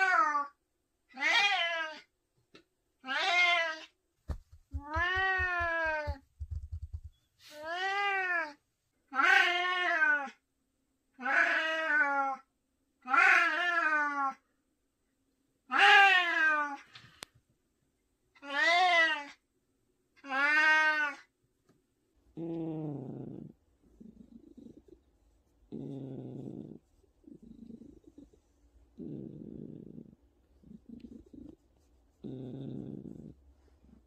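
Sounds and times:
cat meowing: 4.8 - 6.2.

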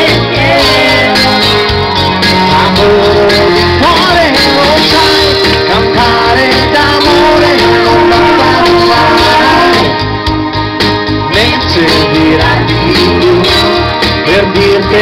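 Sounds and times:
young women singing into microphones: 0.0 - 1.7
pop backing track: 0.0 - 15.0.

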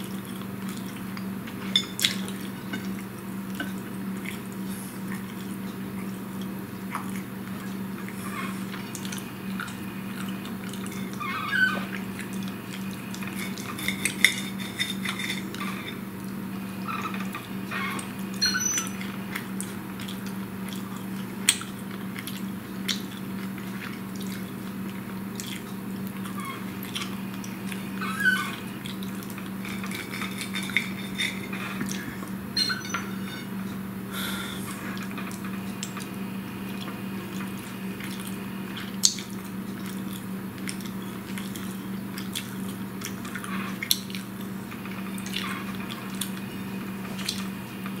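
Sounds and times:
chewing: 0.0 - 16.4, 18.0 - 33.8, 36.7 - 47.5
steady low hum: 0.0 - 48.0
fork scraping on a plate: 13.1 - 16.0, 29.6 - 33.5.

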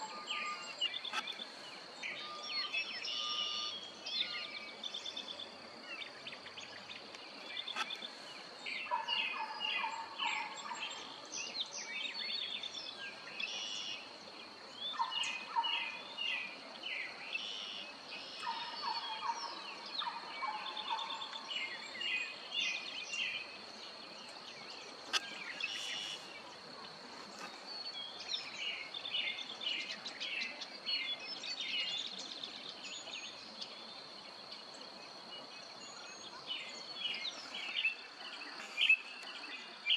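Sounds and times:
songbirds singing: 0.0 - 39.9.

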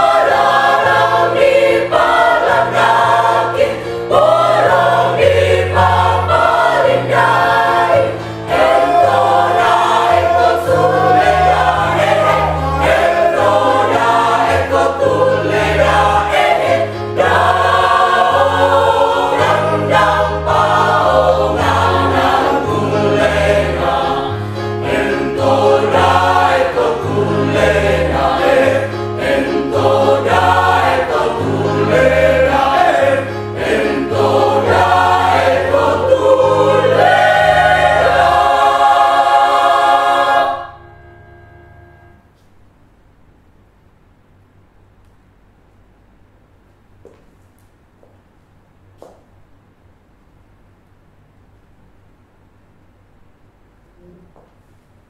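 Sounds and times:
mixed choir singing: 0.0 - 41.3.

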